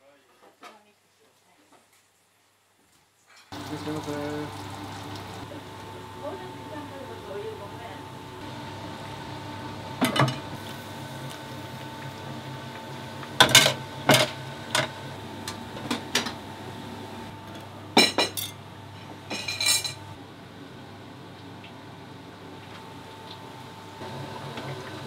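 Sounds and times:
steady hum: 3.6s - 24.6s
dishes and utensils clattering: 18.0s - 20.0s.

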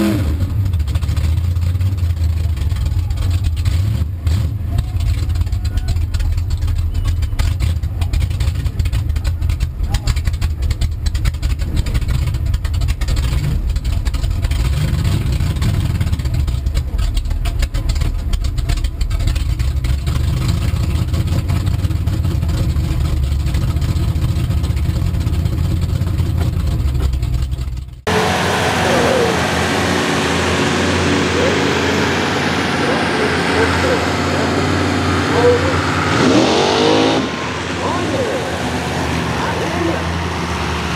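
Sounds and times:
engines roaring: 0.0s - 40.9s
truck engine rumbling under load: 0.0s - 40.9s
voices: 4.7s - 6.3s, 28.1s - 40.6s.

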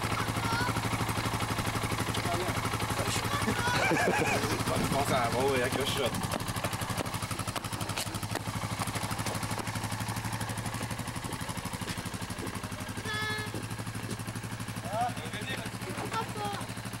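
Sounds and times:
quad engine idling: 0.0s - 17.0s.

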